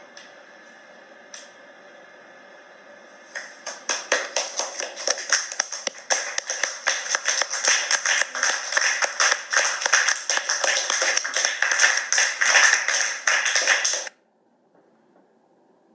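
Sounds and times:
audience applauding: 3.4 - 14.1.

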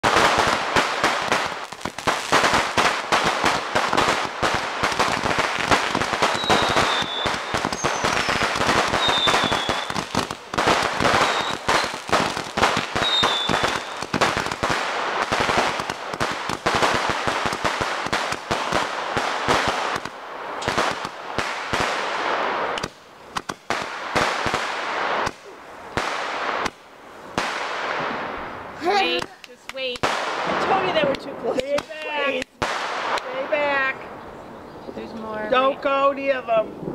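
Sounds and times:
fireworks crackling bangs: 0.0 - 34.2
fireworks falling whistles: 3.9 - 17.3.

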